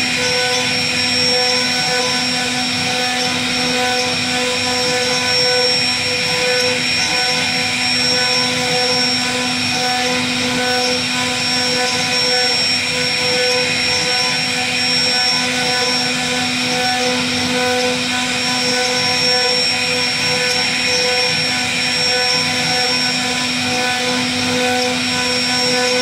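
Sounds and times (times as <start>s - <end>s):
router spindle whine: 0.0s - 26.0s.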